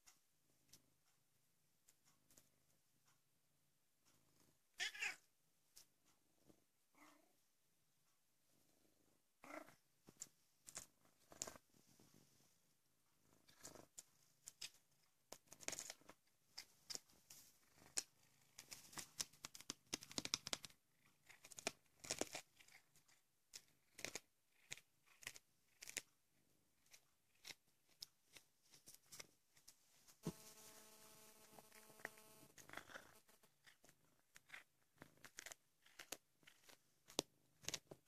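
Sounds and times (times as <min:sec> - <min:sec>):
faint steady hum: 0:25.6 - 0:38.0
cat crunching bones: 0:34.4 - 0:36.8.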